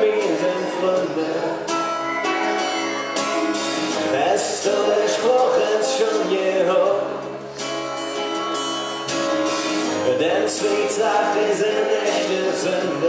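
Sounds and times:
man singing into a microphone: 0:00.0 - 0:02.7, 0:03.9 - 0:07.5, 0:10.0 - 0:13.0
strummed acoustic guitar: 0:00.0 - 0:13.0.

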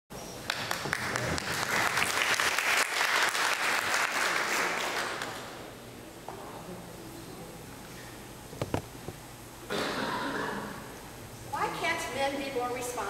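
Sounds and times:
audience applauding: 0:00.4 - 0:05.5.

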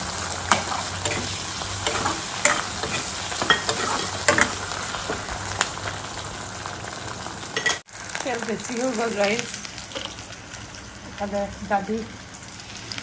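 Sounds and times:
potatoes sizzling in hot oil: 0:00.0 - 0:13.0
metal ladle scraping pan: 0:00.4 - 0:05.4.

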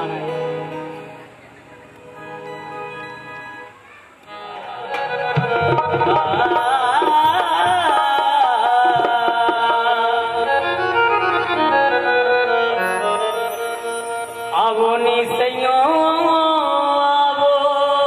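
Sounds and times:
harmonium tones: 0:00.0 - 0:17.6
man singing ornamented melody: 0:04.4 - 0:18.0.

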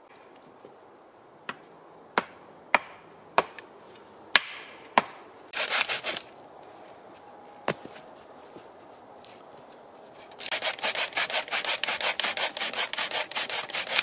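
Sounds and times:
pruning saw on wooden pole: 0:05.5 - 0:06.3, 0:10.2 - 0:14.0.

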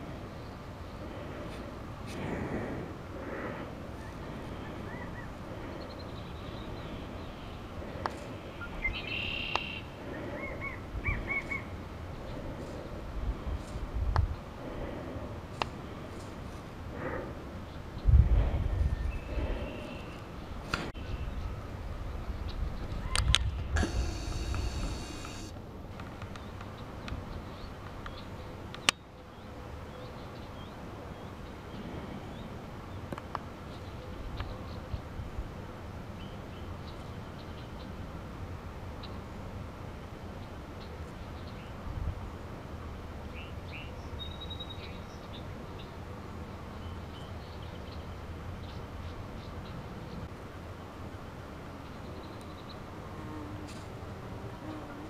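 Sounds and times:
songbirds calling: 0:00.0 - 0:18.2, 0:18.8 - 0:25.5, 0:43.3 - 0:46.0, 0:51.7 - 0:52.9.

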